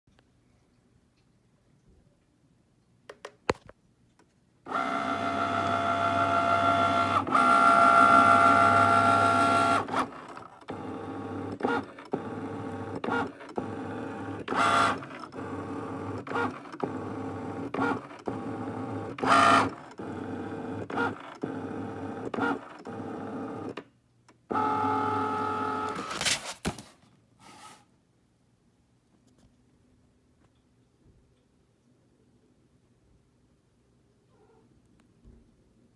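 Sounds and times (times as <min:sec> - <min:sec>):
cutting machine motors whirring: 0:04.7 - 0:23.8, 0:24.5 - 0:26.2.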